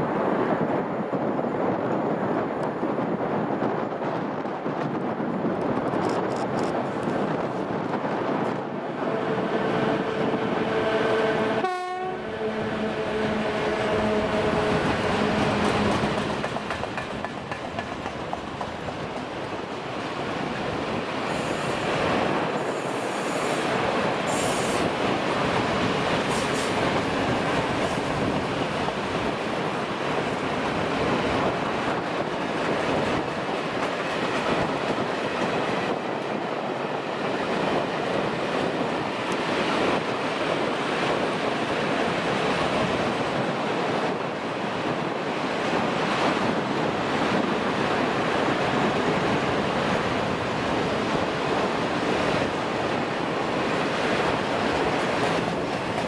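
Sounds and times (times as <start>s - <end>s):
train wagons rumbling clatter: 0.1s - 56.0s
locomotive multi-tone horn: 9.0s - 16.0s.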